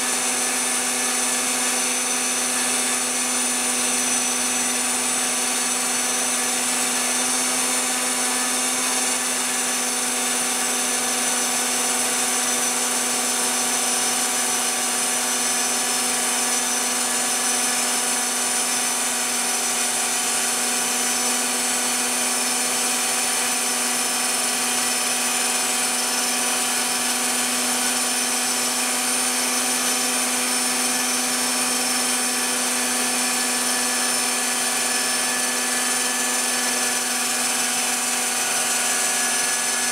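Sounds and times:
spindle motor whining: 0.0 - 39.9.

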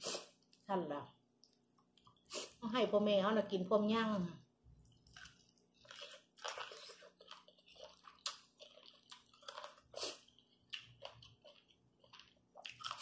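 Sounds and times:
chewing and crunching: 4.8 - 13.0.

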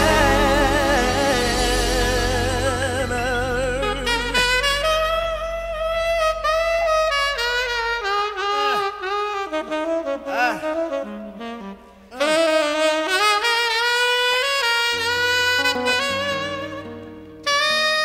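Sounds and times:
bass: 0.0 - 8.6
tenor saxophone solo: 0.0 - 18.0.

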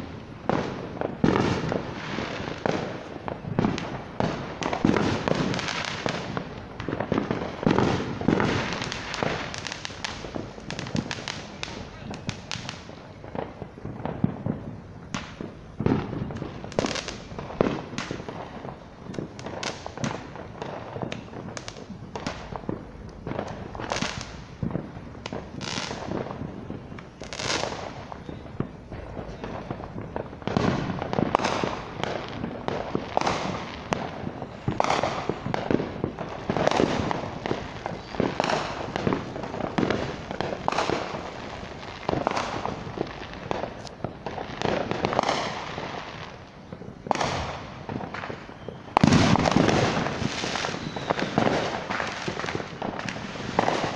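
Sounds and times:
fireworks bangs and pops: 0.0 - 53.9.

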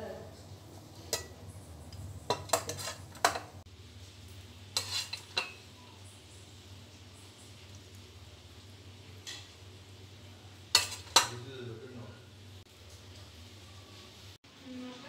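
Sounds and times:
metal ladle clinking on pot: 1.1 - 1.4, 2.3 - 3.5, 10.7 - 11.4.

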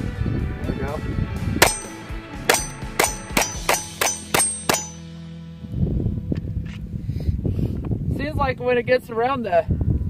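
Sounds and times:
pistol shots: 1.6 - 5.0
short high ring: 1.6 - 5.2.

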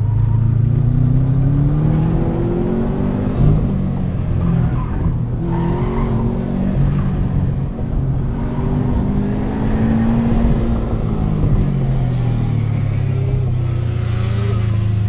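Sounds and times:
car engine revving from inside: 0.9 - 4.3.

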